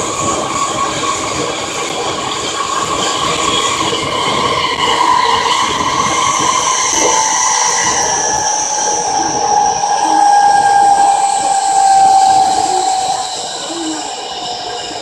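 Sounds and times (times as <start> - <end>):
train motor whine: 0.0 - 15.0
train wheels rumbling on track: 0.0 - 15.0.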